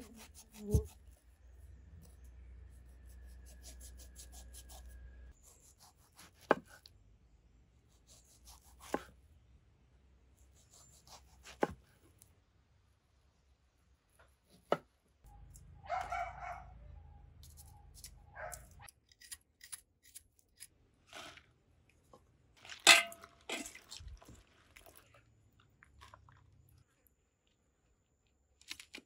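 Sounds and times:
knife scraping root skin: 0.0s - 1.2s, 17.4s - 21.3s
knife cutting on wooden board: 8.2s - 9.1s.

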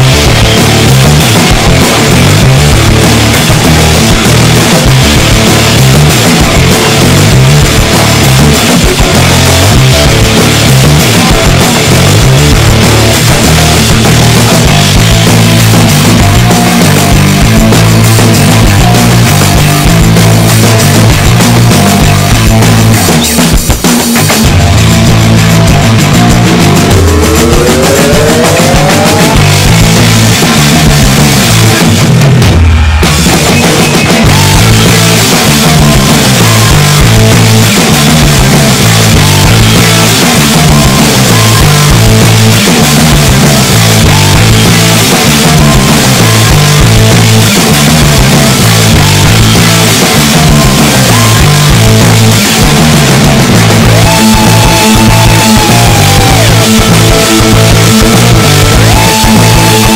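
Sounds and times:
loud rock music: 0.0s - 59.9s.

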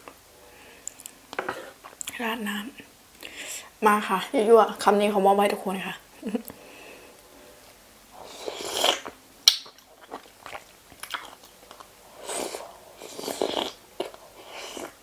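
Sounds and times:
wet sucking and chewing: 8.2s - 15.0s.

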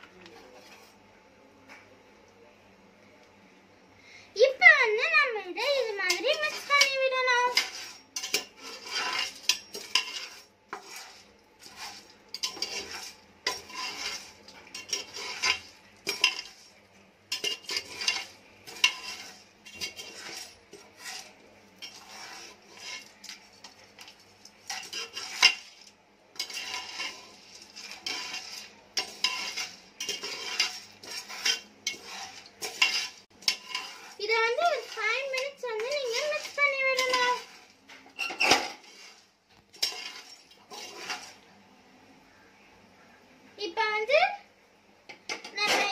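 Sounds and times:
metal spoon scraping pot: 5.6s - 41.4s
kernels rattling against metal: 26.4s - 38.8s.

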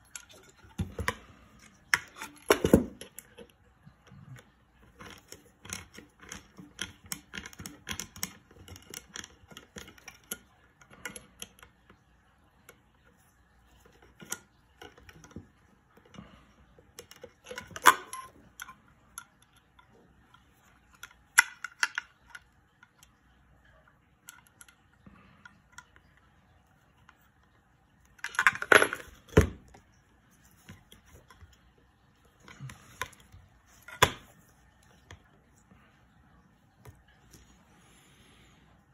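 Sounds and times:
small metal parts clicking: 4.9s - 11.7s, 28.2s - 29.5s.

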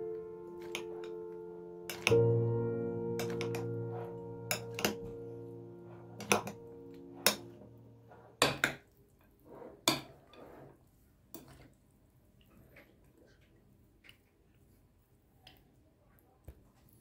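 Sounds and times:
background music: 0.0s - 8.3s.

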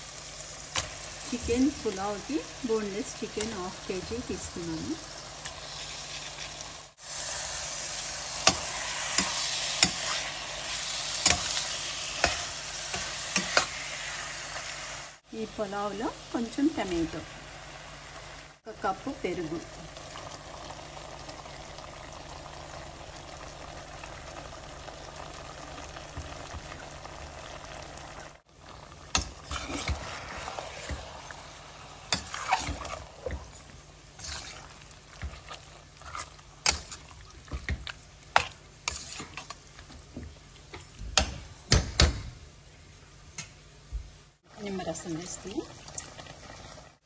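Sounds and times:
food sizzling in pressure cooker: 0.0s - 34.8s
ladle stirring and scraping: 8.4s - 14.0s, 29.1s - 40.0s.

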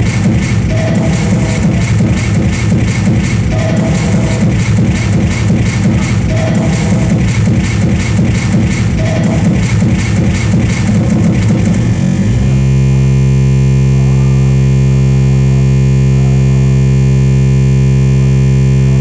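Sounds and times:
distorted drone: 0.0s - 19.0s
industrial electronic music: 0.0s - 19.0s.

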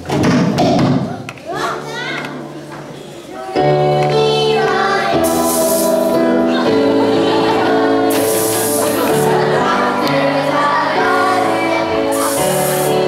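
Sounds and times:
stage music with held notes: 1.3s - 13.0s
bright hissy washes: 4.4s - 13.0s.

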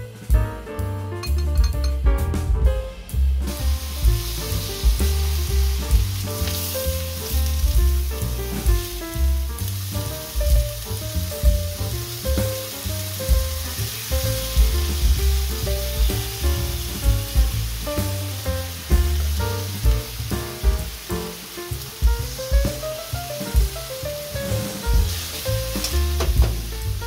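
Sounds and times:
background music with bass beat: 0.0s - 27.0s
meat sizzling in a frying pan: 3.5s - 27.0s.

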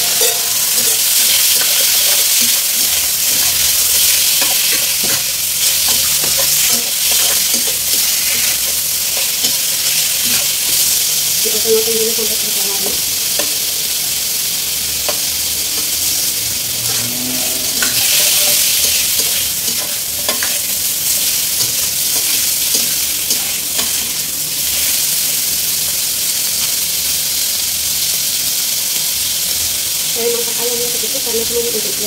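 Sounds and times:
metal spatula scraping wok: 0.0s - 11.1s, 15.1s - 24.9s
chicken sizzling in oil: 0.0s - 32.0s.

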